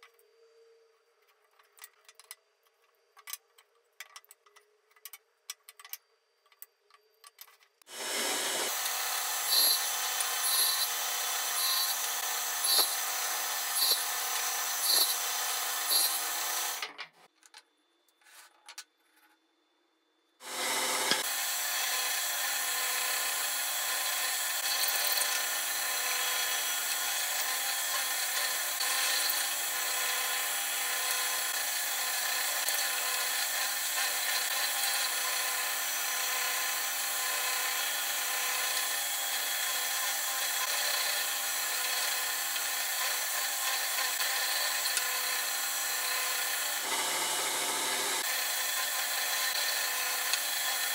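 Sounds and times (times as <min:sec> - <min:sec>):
drill bit cutting wood: 0:07.9 - 0:16.8, 0:20.4 - 0:50.9.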